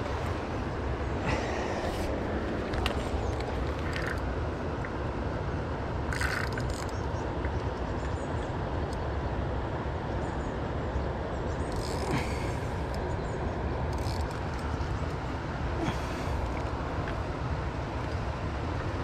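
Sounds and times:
river water rushing: 0.0 - 6.7, 11.8 - 19.0.

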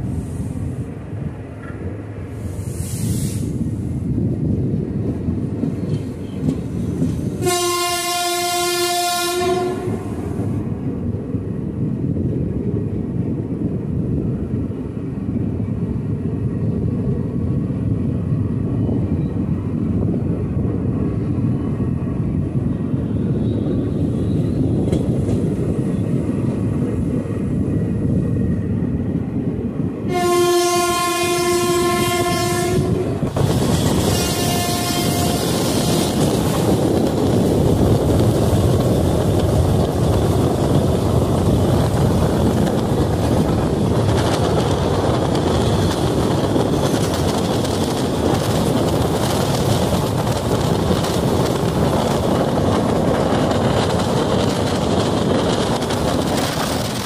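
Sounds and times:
train wheels rumbling on rails: 0.0 - 57.0
train horn blasts: 7.4 - 10.4, 30.1 - 33.3, 33.9 - 36.2.

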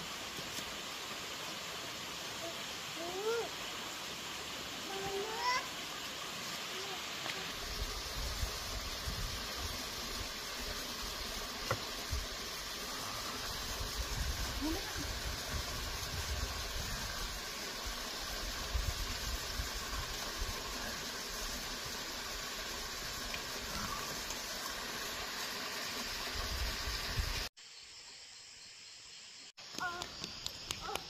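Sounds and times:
rushing water: 0.0 - 27.5.

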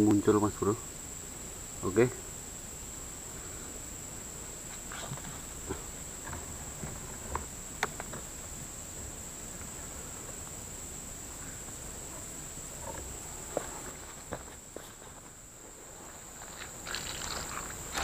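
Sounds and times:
insect drone: 0.0 - 18.0
handling clicks and rustles: 16.0 - 18.0.

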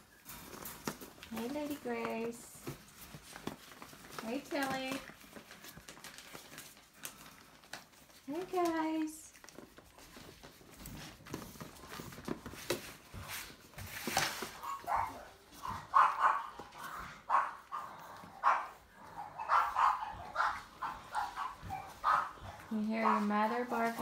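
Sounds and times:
dog barking rapidly: 14.6 - 23.3.

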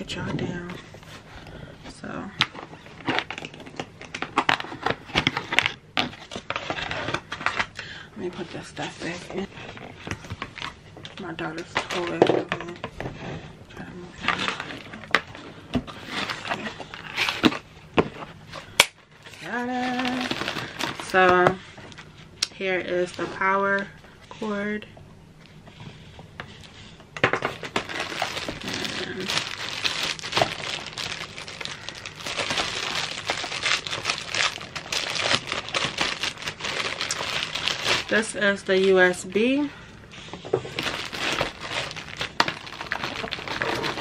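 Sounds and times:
plastic bag crinkling: 2.4 - 7.8, 18.6 - 22.1, 27.4 - 39.6, 40.5 - 44.0.

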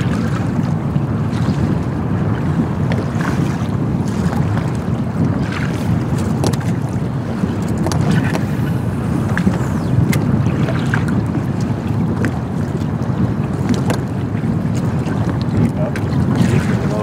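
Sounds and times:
waves slapping boat hull: 0.0 - 17.0
wind buffeting microphone: 0.0 - 17.0.

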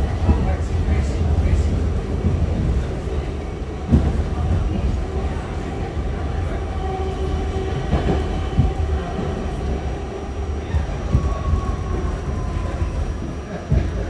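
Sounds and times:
subway car rumbling: 0.0 - 14.0.

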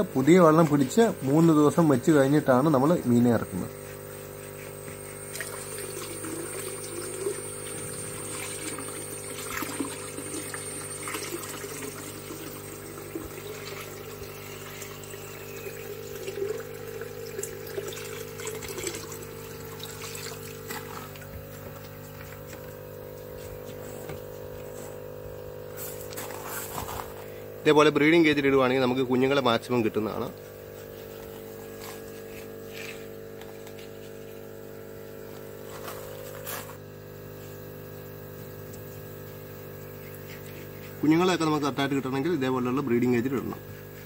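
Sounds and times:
water pouring into a tank: 5.2 - 22.4.

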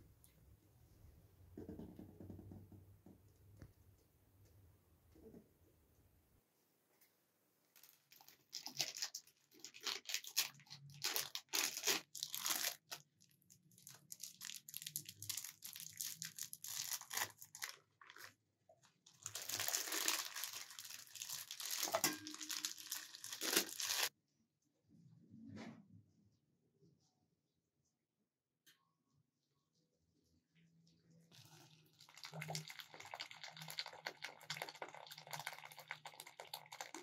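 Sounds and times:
plastic bag crinkling: 7.8 - 18.3, 19.1 - 24.1.

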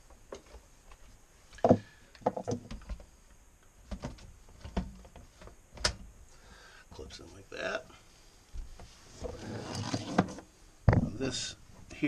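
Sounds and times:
light knocks and clunks: 1.6 - 3.1.

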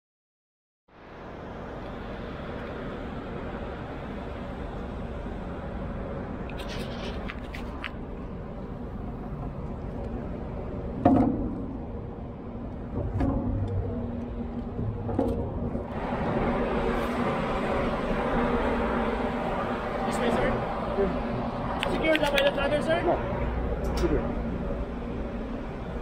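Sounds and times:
steady low rumble: 0.9 - 26.0.

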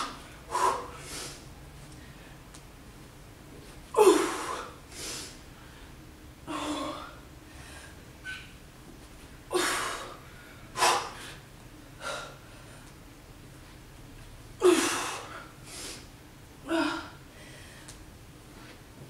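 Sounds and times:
woman exhaling forcefully: 0.0 - 1.4, 4.0 - 5.4, 14.6 - 16.0.

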